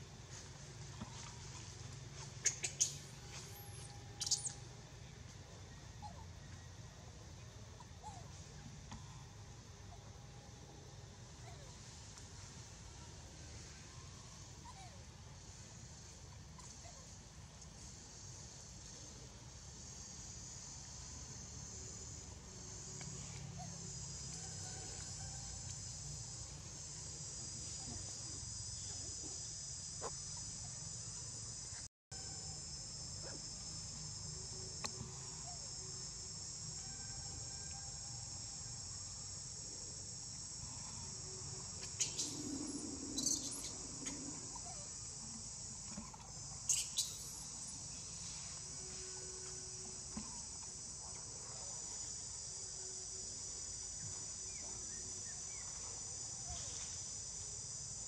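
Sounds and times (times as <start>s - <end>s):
insect chorus shrilling: 2.4s - 4.7s, 32.2s - 50.6s.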